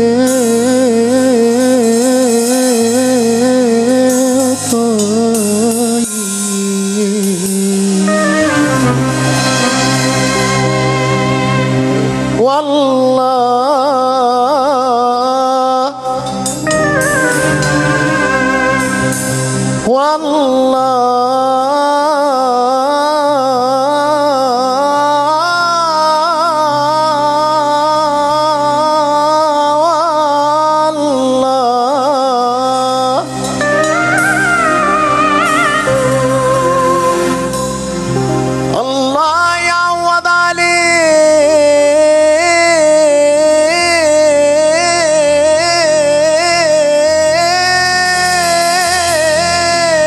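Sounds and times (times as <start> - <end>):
bass and drums: 0.0 - 13.0, 16.2 - 20.6, 32.6 - 50.0
man singing long wavering note: 0.0 - 50.0.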